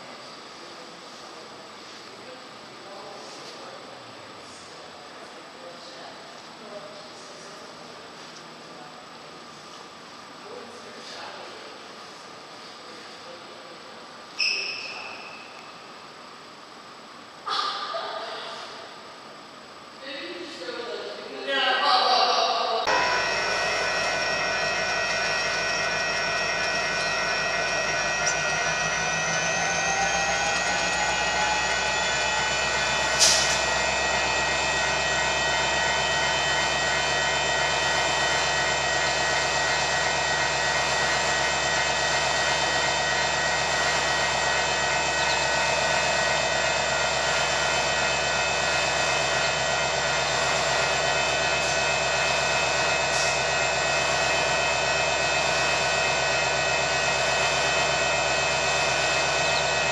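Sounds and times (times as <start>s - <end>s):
diesel locomotive engines: 22.8s - 59.9s
high whine: 22.9s - 59.9s
sharp burst of noise: 22.9s - 59.9s.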